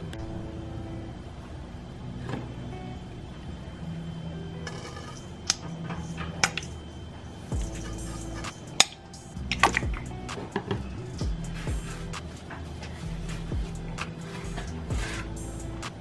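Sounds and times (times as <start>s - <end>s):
soft background music: 0.0s - 16.0s.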